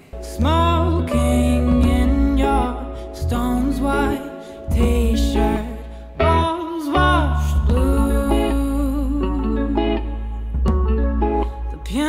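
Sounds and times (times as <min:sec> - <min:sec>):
instrumental music: 0:00.0 - 0:12.0.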